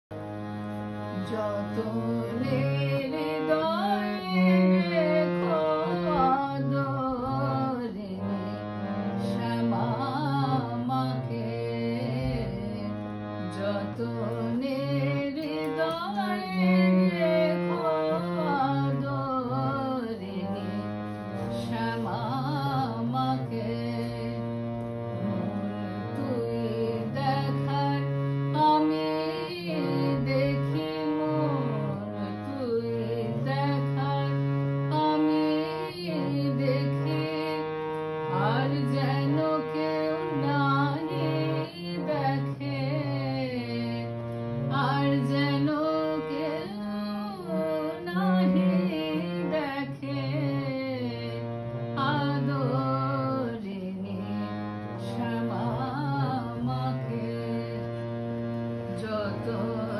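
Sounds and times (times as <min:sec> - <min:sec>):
harmonium chords and drone: 0:00.1 - 0:59.9
woman singing: 0:01.1 - 0:37.7, 0:38.3 - 0:59.9.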